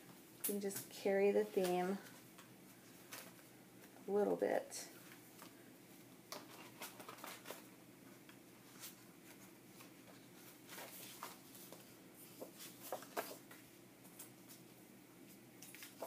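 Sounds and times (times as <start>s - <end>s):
paper sheets rustling: 6.3s - 7.7s, 8.6s - 14.6s, 15.6s - 16.0s.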